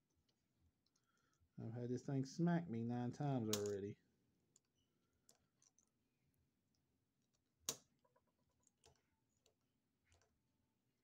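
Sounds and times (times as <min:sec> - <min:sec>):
faint clicks of small metal parts: 0:00.0 - 0:01.6, 0:03.4 - 0:06.1, 0:06.7 - 0:10.6.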